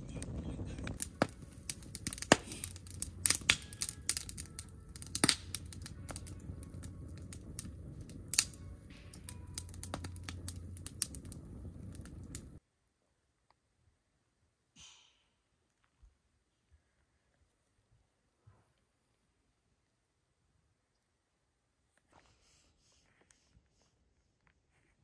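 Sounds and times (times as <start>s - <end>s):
campfire crackling and popping: 0.0s - 12.6s
low steady fire rumble: 0.0s - 12.6s.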